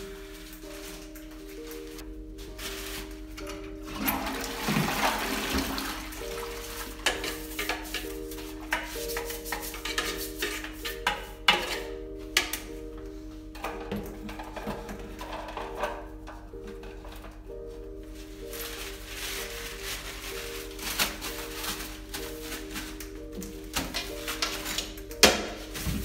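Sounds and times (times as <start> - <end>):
toilet brush scrubbing: 0.0 - 12.8, 13.5 - 26.0
background music sustained notes: 0.0 - 26.0
water rushing in toilet bowl: 3.8 - 7.4
toilet brush knocking on bowl: 7.0 - 12.6.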